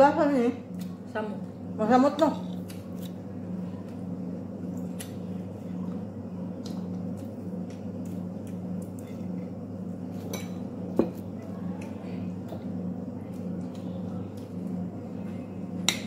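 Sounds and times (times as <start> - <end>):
soft chewing: 2.5 - 10.3.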